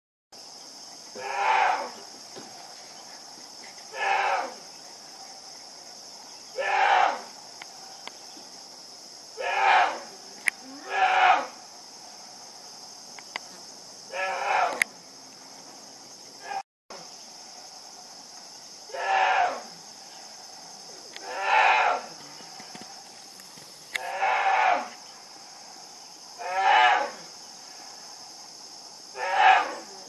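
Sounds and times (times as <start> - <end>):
bear bawling: 1.2 - 2.0, 3.9 - 4.6, 9.4 - 11.6, 14.1 - 14.8, 18.9 - 19.7, 21.2 - 22.5, 26.4 - 27.3, 29.1 - 30.0.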